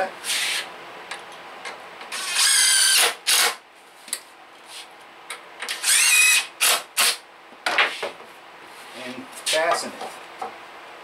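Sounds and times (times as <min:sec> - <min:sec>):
drill motor whining: 0:02.1 - 0:03.6, 0:05.7 - 0:07.1.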